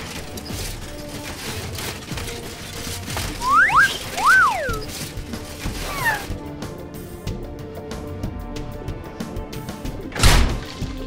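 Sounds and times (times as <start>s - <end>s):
mechanical clattering effects: 0.0s - 6.3s
cartoon background music: 0.0s - 11.0s.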